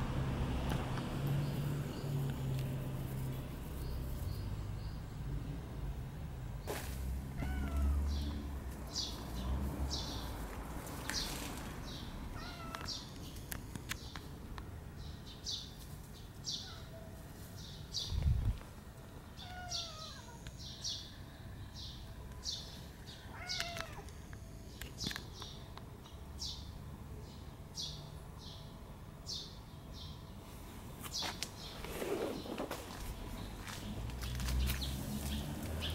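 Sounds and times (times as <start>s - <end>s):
cat meowing: 7.4s - 8.1s, 12.4s - 12.9s, 19.4s - 20.4s, 23.3s - 24.1s.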